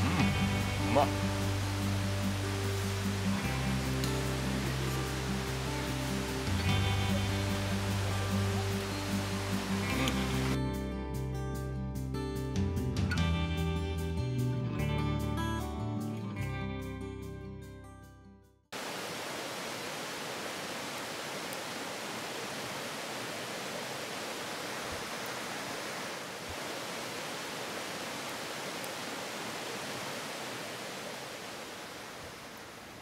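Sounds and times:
river water rushing: 0.0 - 10.6, 18.8 - 33.0.

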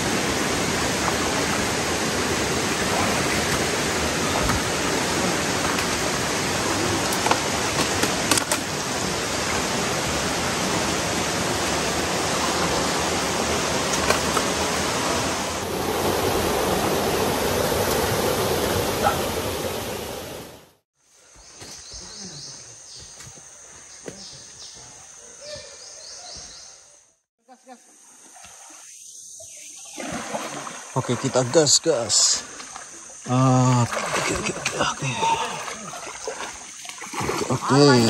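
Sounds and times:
water splashes and knocks: 0.0 - 15.7, 17.6 - 19.2, 29.9 - 38.0
river water rushing: 0.0 - 20.7, 30.0 - 38.0.

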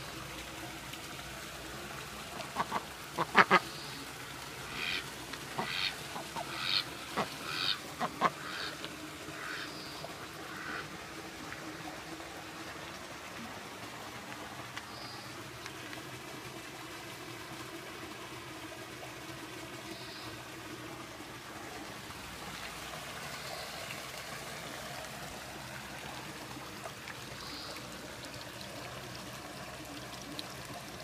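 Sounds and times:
duck quacking: 2.6 - 3.6, 4.7 - 5.0, 5.6 - 8.7, 10.5 - 10.8.

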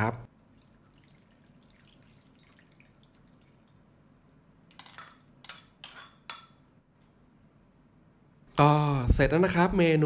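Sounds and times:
soup splashing and dripping: 0.3 - 4.8.

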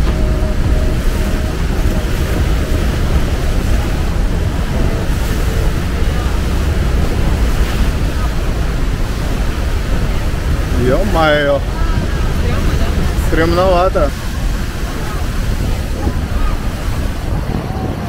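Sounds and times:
waterfall roaring: 0.0 - 18.0
wind buffeting microphone: 0.0 - 18.0.

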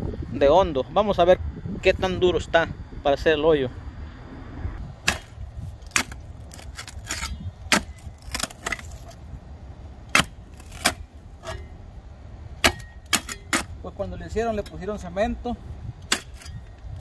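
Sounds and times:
digger blades striking concrete: 5.0 - 9.2, 10.1 - 11.8, 12.6 - 13.9, 16.0 - 17.0.

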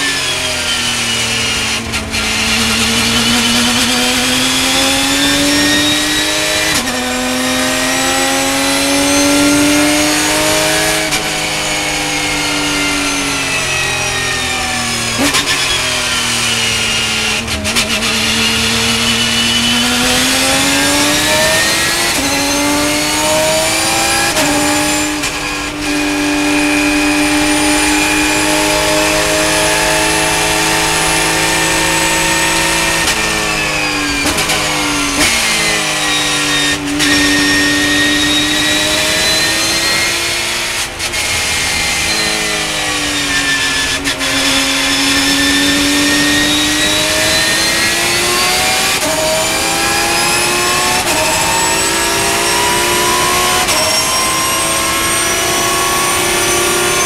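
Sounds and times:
race car engine revving: 0.0 - 57.0
gear changes: 0.8 - 57.0.

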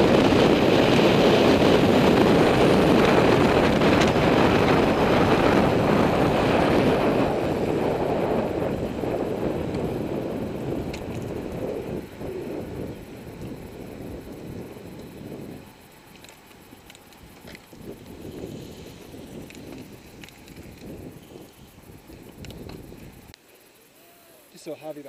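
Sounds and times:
wind rushing over microphone: 0.0 - 23.4.

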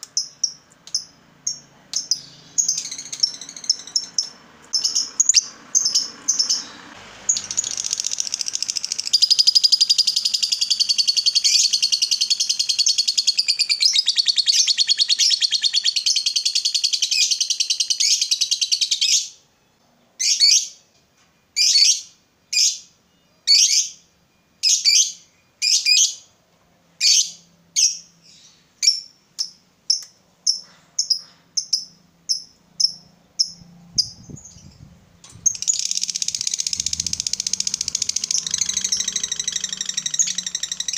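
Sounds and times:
lovebird chattering trill: 0.0 - 19.3, 28.8 - 40.9.

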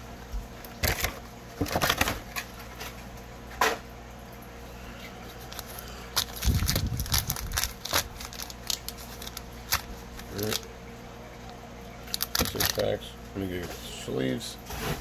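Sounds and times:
faint steady hum: 0.0 - 15.0
card packs rustling: 0.7 - 2.8, 5.3 - 10.7, 11.4 - 13.1.

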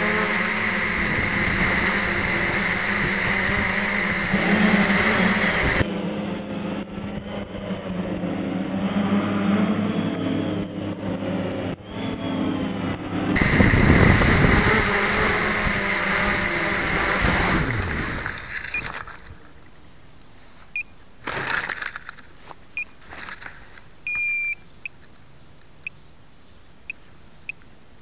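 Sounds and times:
drone motors and propellers: 0.0 - 20.1
short electronic beeps: 24.1 - 24.6.

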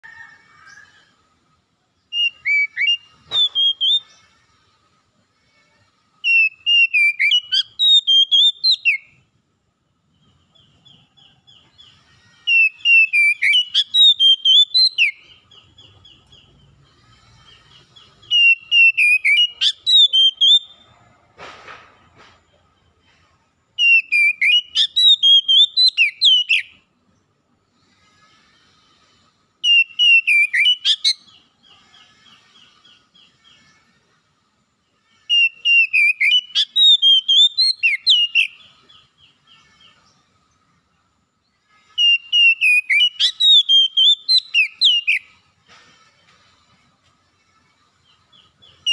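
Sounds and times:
bird whistled song: 2.1 - 4.2, 6.2 - 9.2, 10.5 - 16.8, 17.5 - 20.8, 23.8 - 26.8, 29.6 - 31.5, 35.3 - 40.0, 42.0 - 45.4, 48.0 - 48.9.

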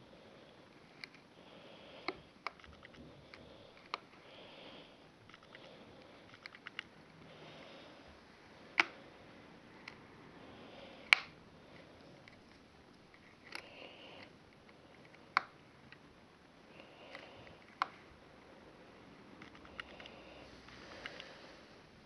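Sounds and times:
loud snaps: 8.8 - 9.0, 11.1 - 11.4.

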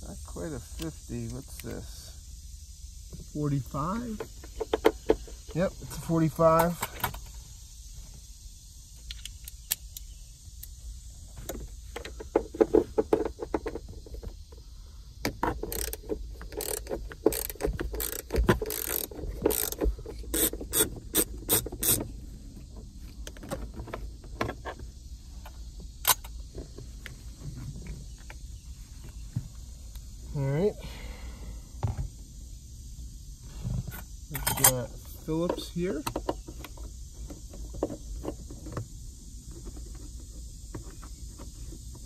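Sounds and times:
rapid metallic clicks of hand tool: 15.5 - 22.0.

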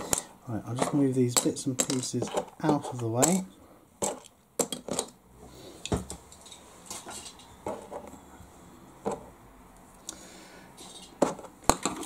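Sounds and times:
small parts clicking on plastic tray: 0.0 - 3.4.

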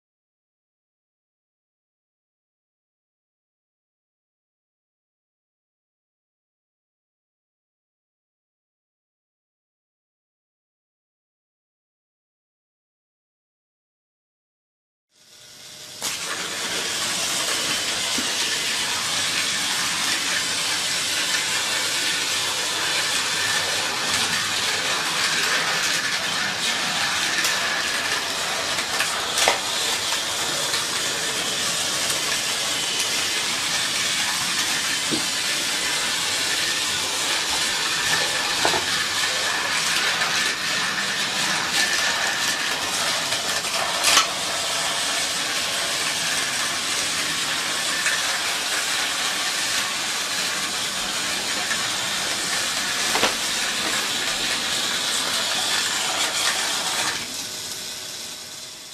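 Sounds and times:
toy train motor whirring: 15.2 - 58.9.

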